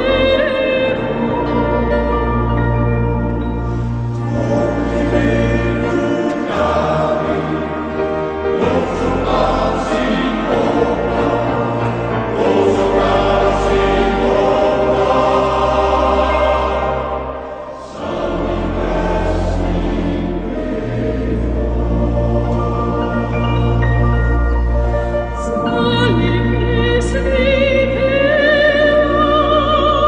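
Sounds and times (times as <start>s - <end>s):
choir singing held chords: 0.0s - 30.0s.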